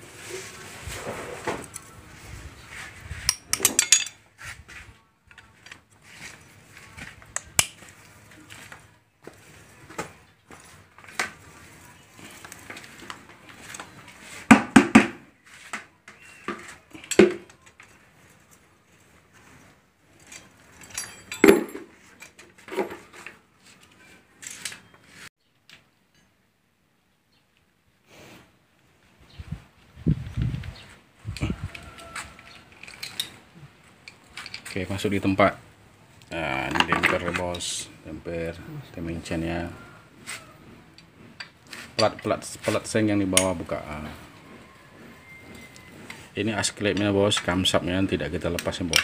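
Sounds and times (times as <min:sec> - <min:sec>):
hand tools clinking on metal: 0:03.2 - 0:04.3, 0:20.2 - 0:24.9, 0:40.9 - 0:49.0
metal tools clinking on engine block: 0:03.3 - 0:04.3, 0:20.2 - 0:23.3.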